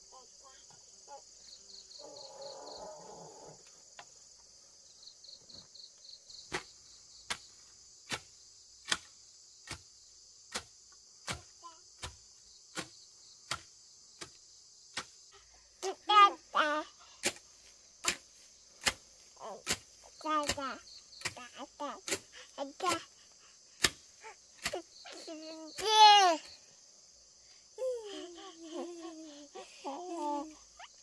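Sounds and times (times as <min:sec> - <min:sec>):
crickets buzzing: 0:00.0 - 0:31.0
hand tool chopping into earth: 0:06.5 - 0:15.2, 0:17.2 - 0:23.0, 0:23.8 - 0:25.0.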